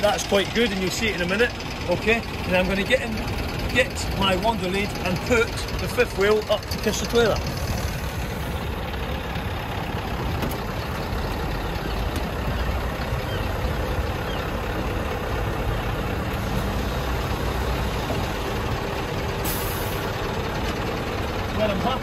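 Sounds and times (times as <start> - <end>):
truck engine idling: 0.0 - 22.0
air hissing: 19.4 - 20.1.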